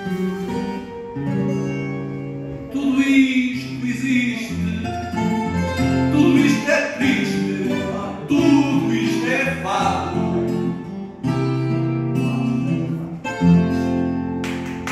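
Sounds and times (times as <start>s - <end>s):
plucked guitars: 0.0s - 14.9s
person singing: 2.6s - 5.0s, 6.0s - 10.8s.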